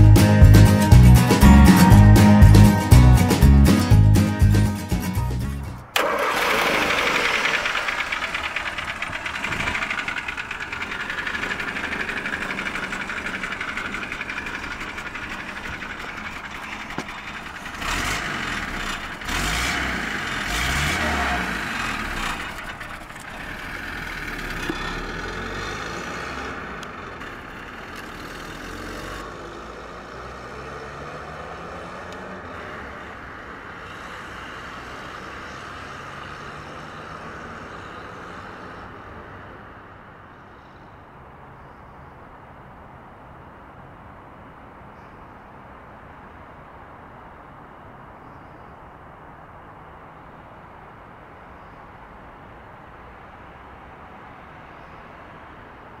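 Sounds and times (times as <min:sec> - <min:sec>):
car engine idling and revving: 0:00.0 - 0:40.1.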